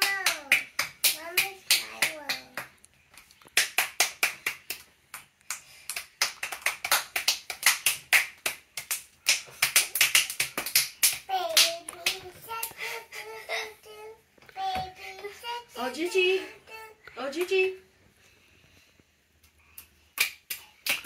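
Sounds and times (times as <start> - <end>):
child's voice: 0.0 - 2.7, 11.3 - 17.0
children clapping: 0.0 - 12.8, 19.8 - 21.0.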